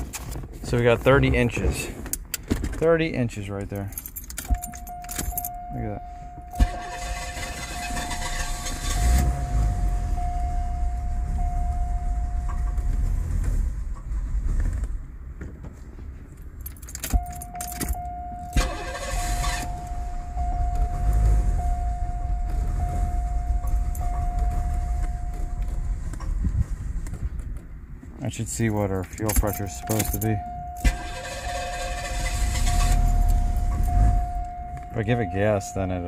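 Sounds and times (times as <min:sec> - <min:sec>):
car engine cranking and running rough: 0:00.0 - 0:15.6, 0:16.2 - 0:36.0
steady warning chime: 0:03.9 - 0:13.3, 0:16.7 - 0:26.1, 0:28.4 - 0:36.0.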